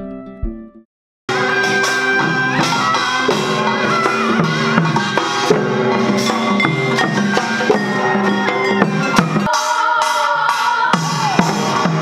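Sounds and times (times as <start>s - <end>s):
held notes and wavering melody: 0.0s - 9.6s
drums and gongs beating: 1.3s - 12.0s.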